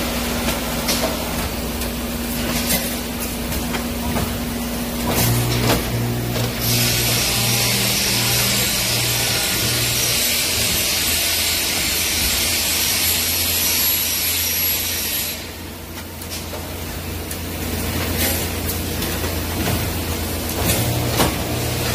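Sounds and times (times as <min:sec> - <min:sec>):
low electrical hum: 0:00.0 - 0:13.6
welding machine hiss: 0:04.7 - 0:16.5.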